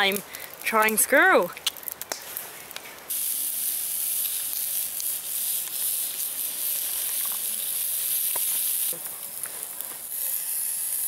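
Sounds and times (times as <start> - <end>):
meat sizzling in a frying pan: 3.1 - 11.0.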